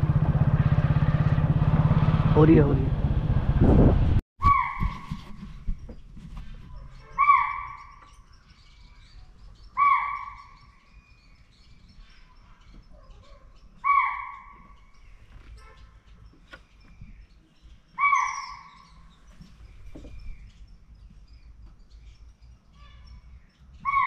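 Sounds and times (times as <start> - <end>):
deer alarm call: 7.1 - 8.0, 9.8 - 10.6, 18.0 - 18.8.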